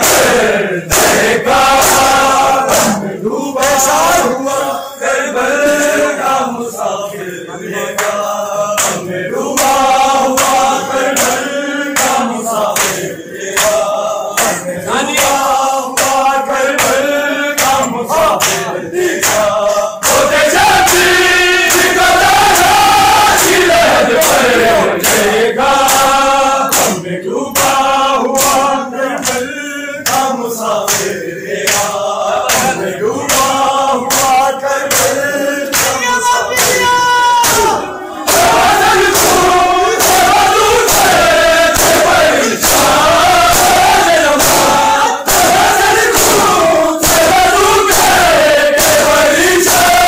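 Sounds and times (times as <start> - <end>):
crowd chanting: 0.0 - 50.0
men singing a lament: 0.0 - 50.0
hands slapping bare chests: 8.0 - 14.6, 15.2 - 27.0, 27.6 - 48.2.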